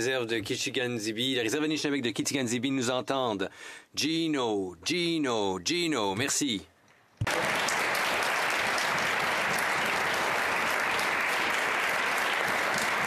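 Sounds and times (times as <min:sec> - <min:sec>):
crowd applauding: 0:07.2 - 0:13.0.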